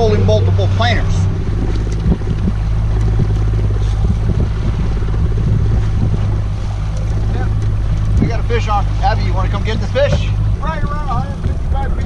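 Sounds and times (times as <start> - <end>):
boat engine humming: 0.0 - 12.0
water noise: 0.0 - 12.0
wind: 0.0 - 12.0.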